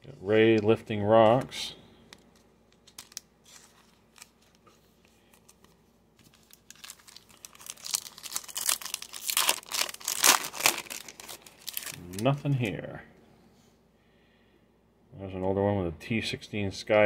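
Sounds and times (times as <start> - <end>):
cards and plastic sleeve clicking: 2.1 - 4.6
plastic wrapper crinkling and tearing: 2.2 - 12.7.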